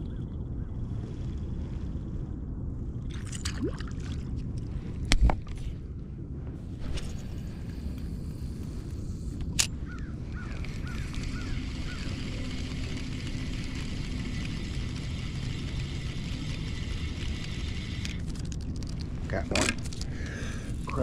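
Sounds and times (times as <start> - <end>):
bird calling: 9.8 - 12.6.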